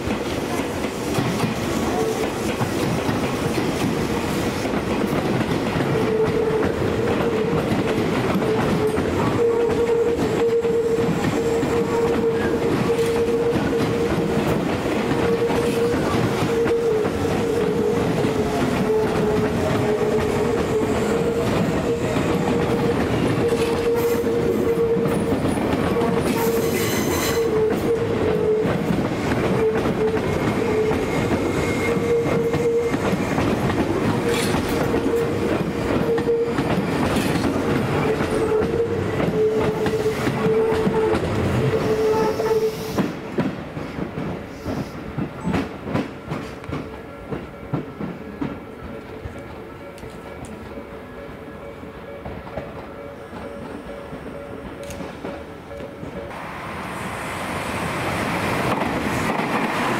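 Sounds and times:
train wheels clattering over rail joints: 0.0 - 10.4, 11.0 - 42.0
electric train whine: 0.0 - 59.9.

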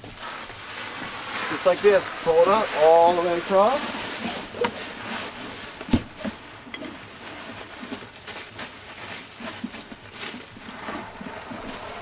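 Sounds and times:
plastic film rustling and crinkling: 0.0 - 12.0
thump: 5.9 - 6.1.

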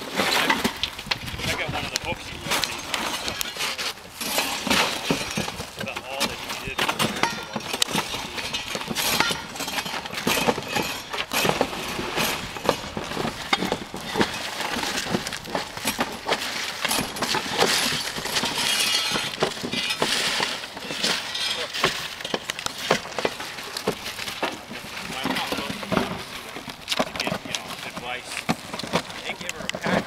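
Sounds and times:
crunching clatter of debris: 0.0 - 30.0
shovels scraping shingles: 0.0 - 30.0.

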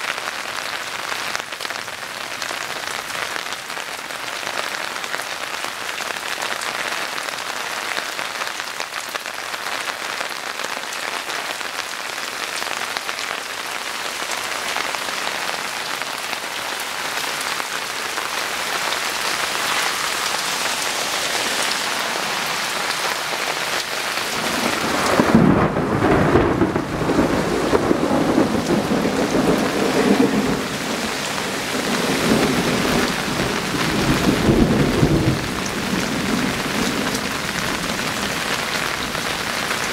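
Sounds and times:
heavy rain falling: 0.0 - 39.9
thunder rumbling: 24.3 - 39.8.

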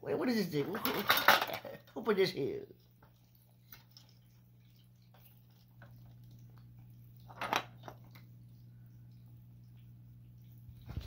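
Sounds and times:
plastic cup clattering: 0.6 - 1.7.

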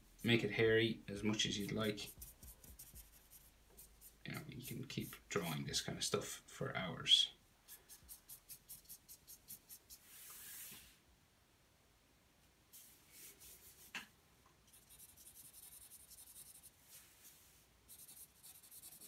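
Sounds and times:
marker rubbing stroke: 1.3 - 5.3, 7.7 - 10.7, 14.7 - 16.8, 17.9 - 19.0
marker pen scratching on paper: 1.4 - 5.2, 14.7 - 16.7, 17.9 - 19.0.

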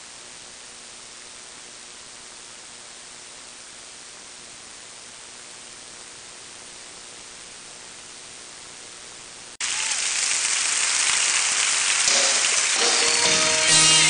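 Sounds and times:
faint hum: 0.0 - 14.0
static hiss: 0.0 - 14.0.

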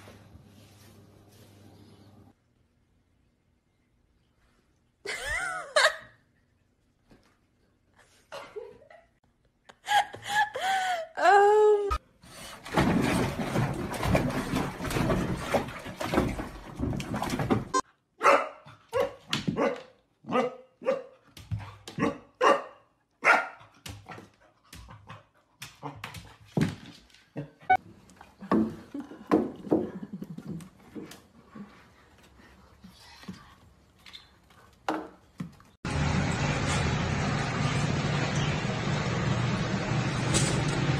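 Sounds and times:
dog barking sharply: 18.2 - 21.1, 22.0 - 23.6
bath water rushing: 35.9 - 40.9.

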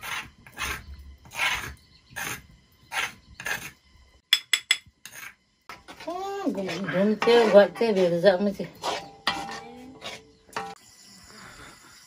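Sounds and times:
utensil scraping stone slab: 0.0 - 3.8, 5.0 - 5.4, 6.6 - 10.4.

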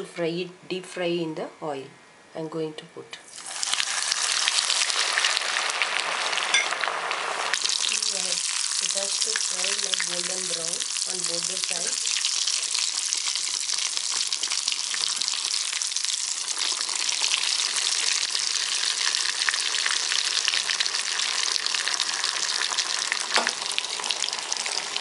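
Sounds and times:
oil bubbling and crackling: 3.3 - 25.0
sharp knock: 23.4 - 23.6.

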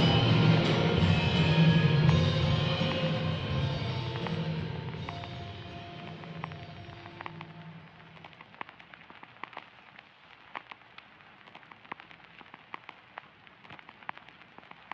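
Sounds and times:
slowed reverb-soaked song: 0.0 - 8.5
crackling pops over soft hiss: 3.9 - 14.9.

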